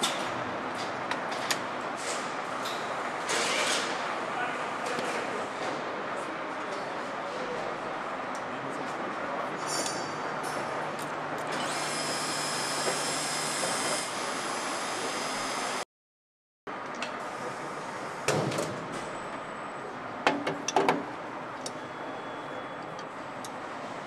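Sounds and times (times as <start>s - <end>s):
machine hum with hiss: 11.5s - 15.8s.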